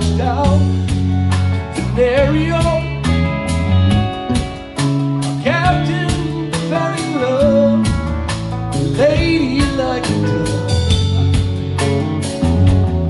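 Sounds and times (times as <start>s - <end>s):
man singing: 0.0s - 0.9s, 1.6s - 3.3s, 5.2s - 10.9s
country rock band playing: 0.0s - 13.0s.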